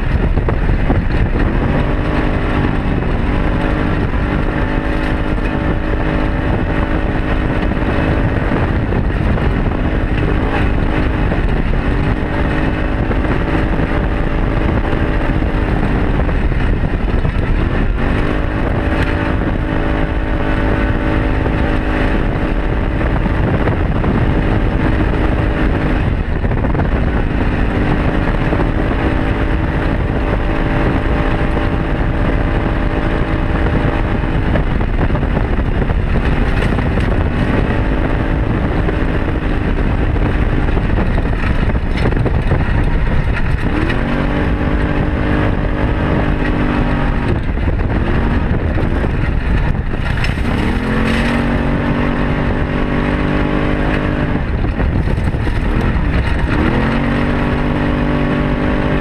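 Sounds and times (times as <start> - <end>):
off-road vehicle engine running: 0.0 - 59.0
tyres on gravel: 39.4 - 52.5.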